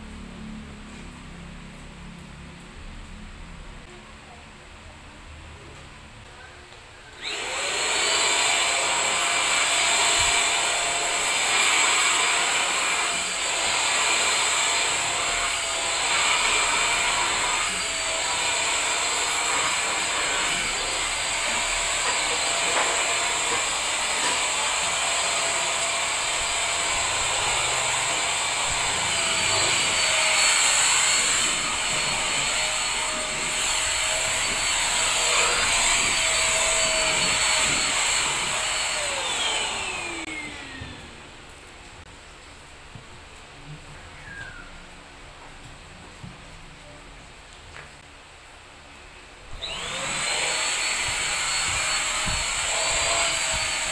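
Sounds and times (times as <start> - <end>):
handheld vacuum cleaner running: 7.2 - 41.2, 49.6 - 53.9.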